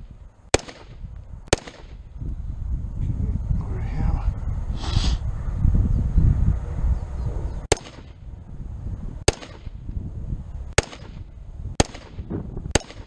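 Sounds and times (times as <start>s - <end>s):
rifle gunshots: 0.5s - 2.0s, 7.7s - 8.2s, 9.3s - 9.8s, 10.8s - 13.0s.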